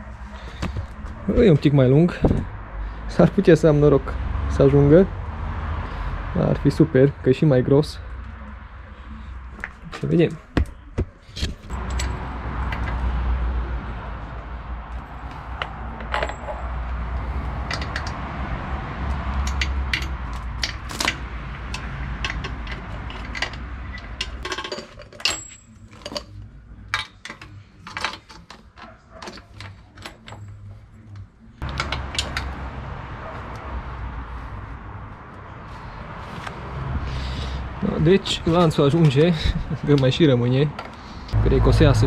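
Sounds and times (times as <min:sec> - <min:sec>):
metal chain links clinking: 0:11.7 - 0:13.0, 0:15.0 - 0:18.2, 0:19.4 - 0:26.4.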